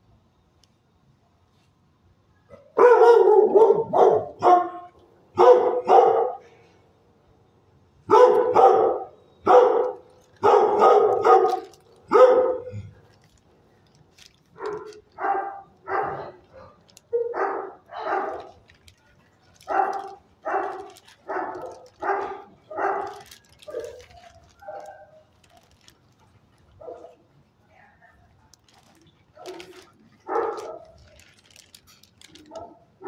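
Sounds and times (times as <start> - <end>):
dog barking: 2.5 - 6.5, 8.1 - 12.8, 14.6 - 18.6, 19.6 - 24.0, 24.6 - 25.2, 26.8 - 27.2, 29.4 - 31.0.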